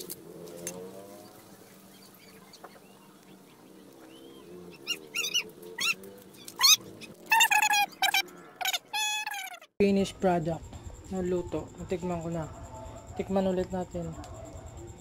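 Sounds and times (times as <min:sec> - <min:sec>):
short high animal cries: 0:06.6 - 0:09.7.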